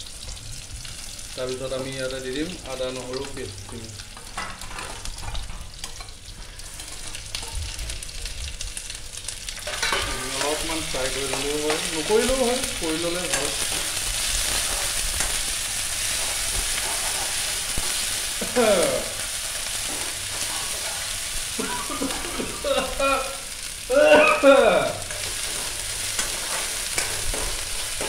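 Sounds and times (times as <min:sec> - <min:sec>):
food sizzling in hot oil: 0:00.0 - 0:28.0
metal ladle scraping pan: 0:04.2 - 0:06.1, 0:09.6 - 0:10.7.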